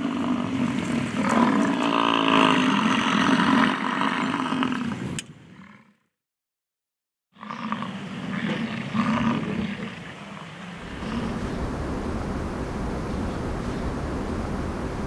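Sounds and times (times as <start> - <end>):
bison bellowing: 10.8 - 15.0.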